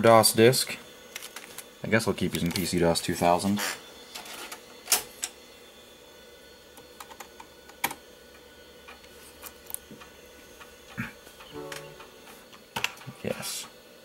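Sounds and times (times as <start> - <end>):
computer hum: 7.0 - 13.1.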